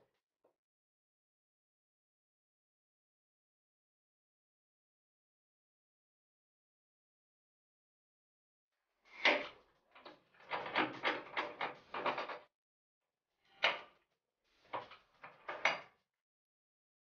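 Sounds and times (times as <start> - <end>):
knocks and scrapes of tool parts: 14.6 - 16.0.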